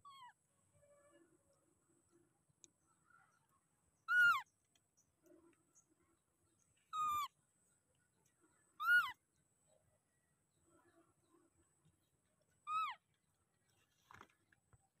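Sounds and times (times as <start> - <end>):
infant monkey calling: 0.0 - 0.4, 4.1 - 4.5, 6.9 - 7.3, 8.8 - 9.2, 12.6 - 13.0.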